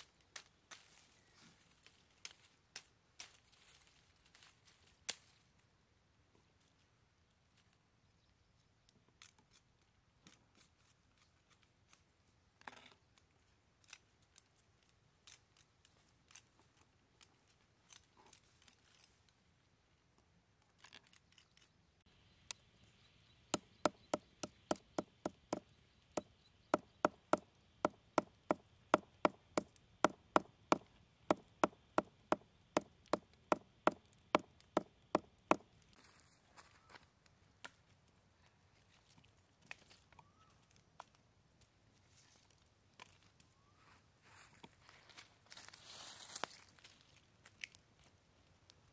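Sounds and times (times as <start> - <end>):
rustling and snapping of leaves: 0.0 - 5.7, 13.0 - 19.4, 45.1 - 48.9
knife chopping wood: 26.8 - 35.6.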